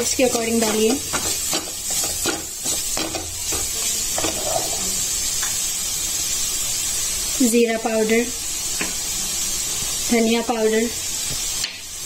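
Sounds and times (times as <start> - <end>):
vegetables sizzling in oil: 0.0 - 12.0
plastic spatula scraping pan: 4.2 - 4.9.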